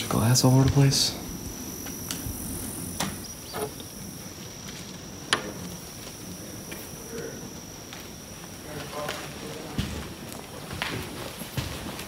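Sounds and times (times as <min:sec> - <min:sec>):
high insect buzz: 0:00.0 - 0:10.5
footsteps on wooden boards: 0:07.7 - 0:12.0.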